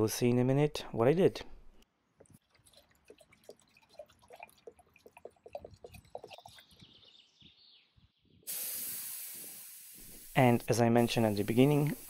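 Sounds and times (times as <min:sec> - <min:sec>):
thin trickle of liquid: 0:02.0 - 0:07.1.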